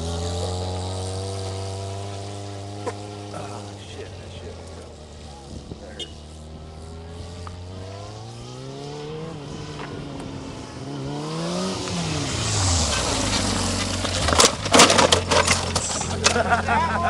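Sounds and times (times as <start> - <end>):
motorcycle engine revving: 0.0 - 17.0
motorcycle crashing: 11.6 - 17.0.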